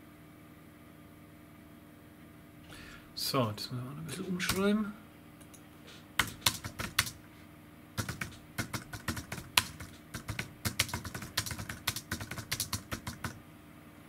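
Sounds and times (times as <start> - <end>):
typing on computer keyboard: 4.5 - 4.7, 5.9 - 7.2, 8.0 - 13.4.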